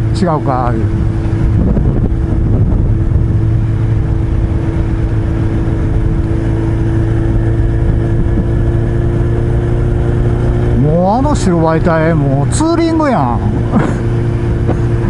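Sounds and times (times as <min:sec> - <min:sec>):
motorcycle engine cruising: 0:00.0 - 0:15.0
wind and road noise: 0:00.0 - 0:15.0.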